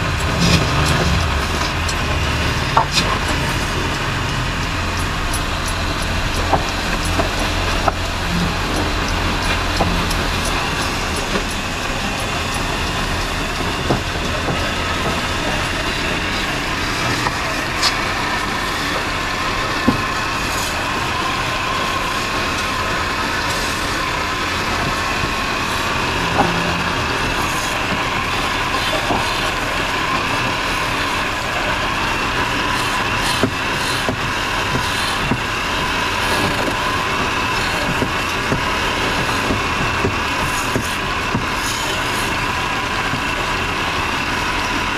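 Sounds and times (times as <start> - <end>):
chisel cutting spinning wood: 0.0 - 44.9
electric wood lathe running: 0.0 - 44.9.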